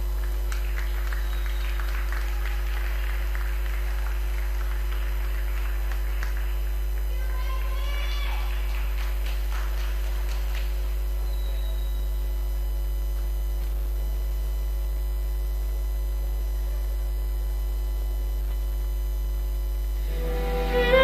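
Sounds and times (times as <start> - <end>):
electrical mains hum: 0.0 - 21.0
music: 20.0 - 21.0.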